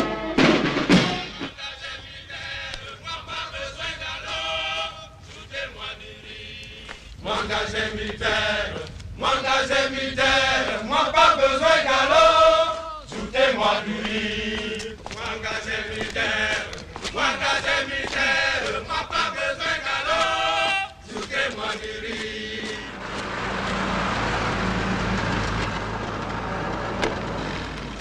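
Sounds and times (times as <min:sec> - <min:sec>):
men chanting together: 0:01.3 - 0:23.0.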